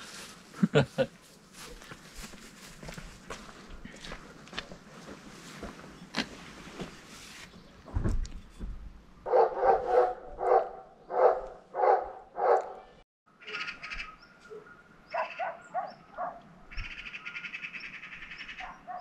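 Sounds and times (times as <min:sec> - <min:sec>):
dog barking: 0:09.3 - 0:13.0, 0:14.5 - 0:16.4, 0:18.6 - 0:19.0.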